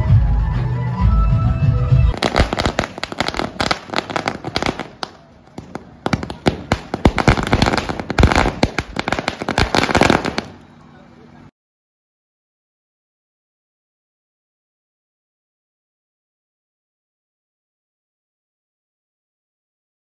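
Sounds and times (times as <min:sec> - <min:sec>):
firecrackers cracking: 0:02.1 - 0:10.7.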